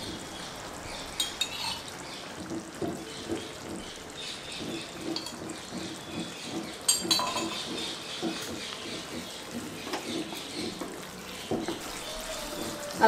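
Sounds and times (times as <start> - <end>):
thick gravy bubbling: 0.0 - 13.0.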